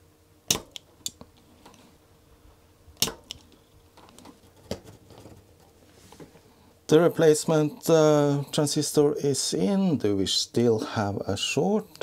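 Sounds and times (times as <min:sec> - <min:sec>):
desoldering pump snapping: 0:00.5 - 0:01.8, 0:03.0 - 0:05.2.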